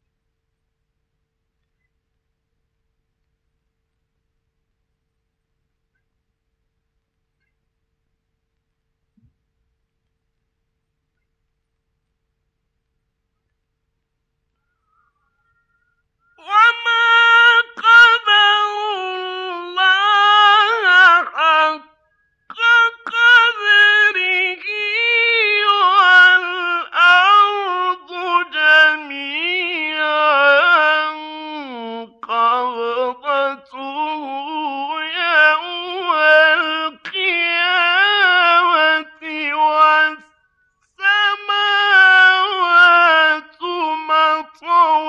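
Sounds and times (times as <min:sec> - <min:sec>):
man chanting melodically: 0:16.4 - 0:40.3, 0:41.0 - 0:45.0.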